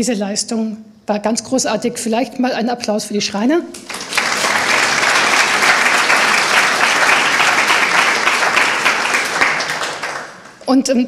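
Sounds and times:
audience applauding: 3.7 - 10.6.

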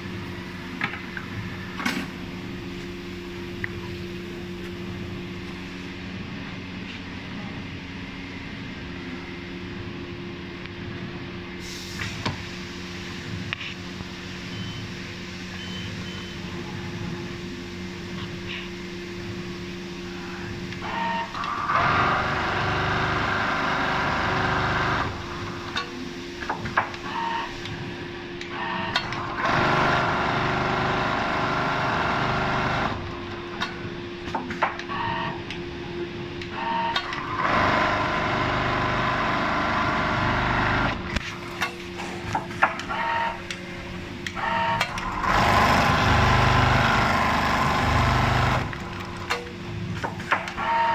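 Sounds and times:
sewing machine hum: 21.7 - 25.2, 37.4 - 41.0, 45.0 - 49.2.

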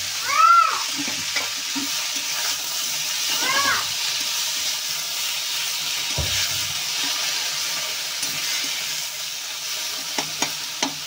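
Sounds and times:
vegetables sizzling in hot oil: 0.0 - 11.0
spatula tapping metal pan: 10.1 - 11.0.

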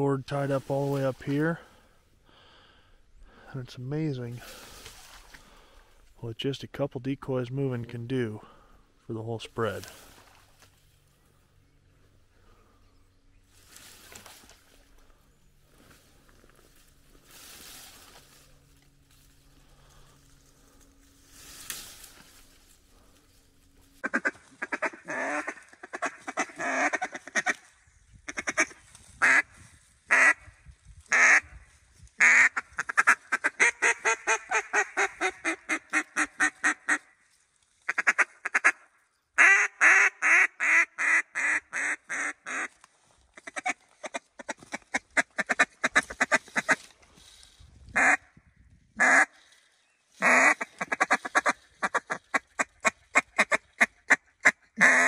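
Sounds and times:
duck call quacks: 24.0 - 27.7, 28.3 - 29.5, 30.1 - 30.5, 31.1 - 31.5, 32.2 - 37.2, 37.9 - 42.7, 43.4 - 46.8, 48.0 - 48.3, 49.0 - 49.4, 50.2 - 55.0.

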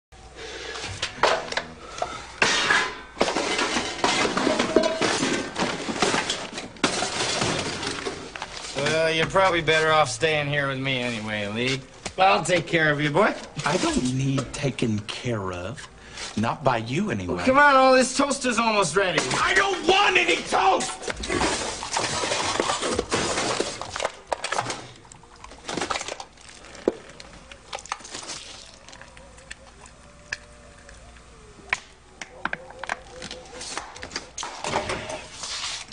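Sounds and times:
objects clattering and crunching: 0.8 - 9.6, 19.0 - 35.9
objects crashing and clattering: 2.4 - 9.1, 19.2 - 25.0.

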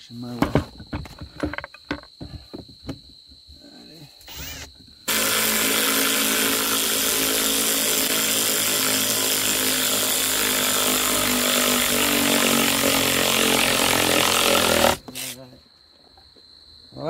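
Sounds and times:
power drill boring into wood: 4.3 - 15.4.

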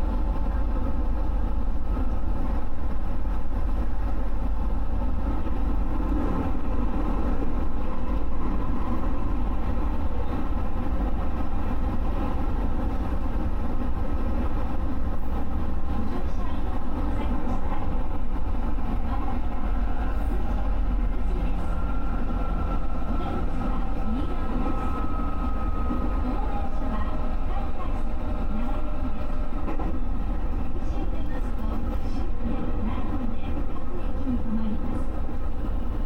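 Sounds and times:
train wheels rumbling on rail: 0.0 - 36.0
faint steady tones: 19.4 - 29.7.

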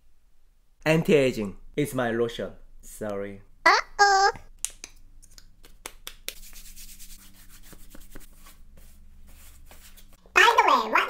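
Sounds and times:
hands rubbing lotion: 5.3 - 10.1.

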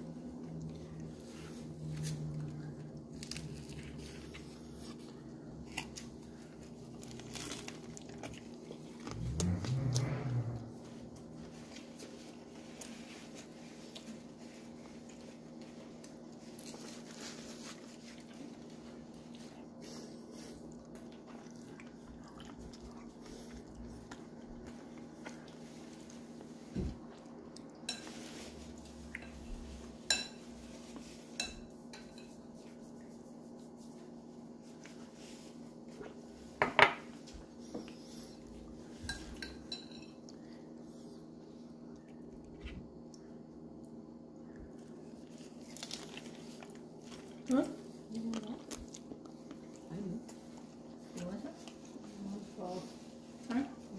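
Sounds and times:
low hum: 0.0 - 12.1
dishes and utensils clinking: 39.0 - 40.2.

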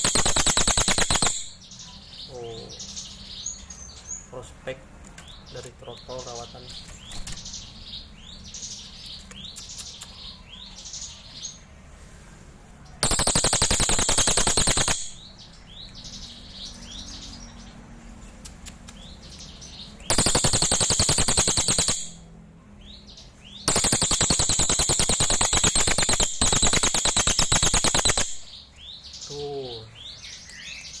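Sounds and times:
bird chirps and whistles: 0.0 - 1.6, 13.0 - 15.2, 20.1 - 22.2, 23.6 - 28.5
bird rattling calls: 0.0 - 1.6, 13.0 - 15.2, 20.1 - 22.2, 23.7 - 28.5.

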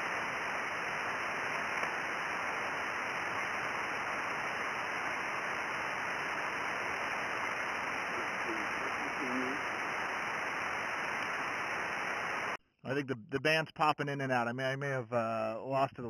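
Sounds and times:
radio band noise hiss: 0.0 - 13.0
faint voice on radio: 8.0 - 9.7.

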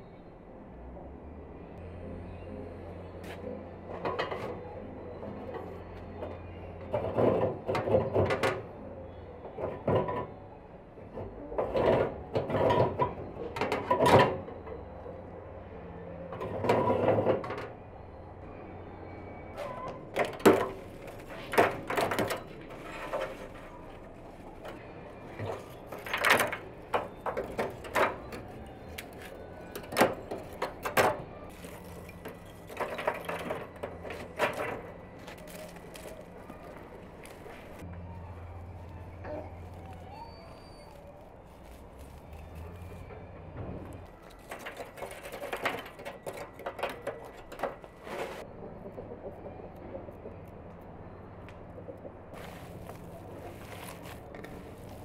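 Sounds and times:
metal clanking and rattling: 20.1 - 36.4.

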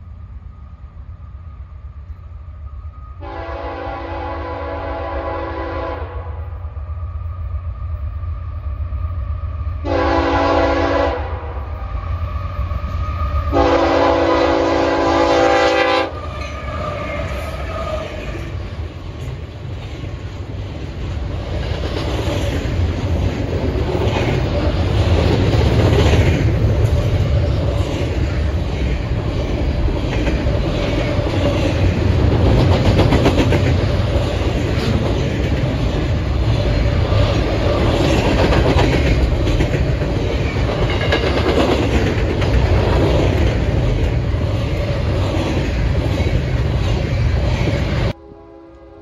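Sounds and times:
train wheel and engine rumble: 0.0 - 49.0
locomotive air horn blasts: 3.2 - 6.4, 9.8 - 11.5, 13.5 - 16.2, 48.2 - 49.0.

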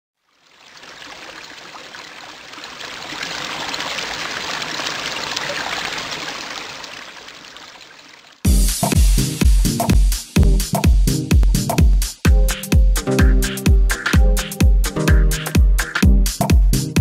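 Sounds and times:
water trickling: 0.2 - 8.5
dance music with heavy beat: 8.5 - 17.0.

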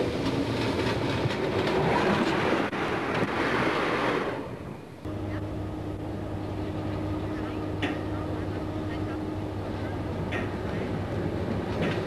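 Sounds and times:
wheels clacking over rail joints: 0.0 - 4.4, 9.6 - 12.0
steam locomotive rolling past: 0.0 - 12.0
steady low hum: 4.7 - 12.0.

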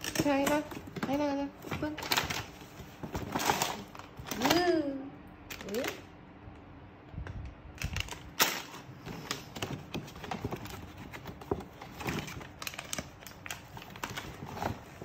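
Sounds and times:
plastic and paper crinkling: 0.0 - 4.7, 7.8 - 15.0.

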